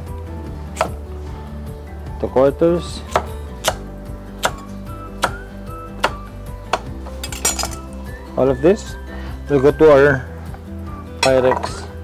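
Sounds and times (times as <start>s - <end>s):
soft background music: 0.0s - 12.0s
knife chopping on wooden board: 3.1s - 3.8s, 4.4s - 5.4s.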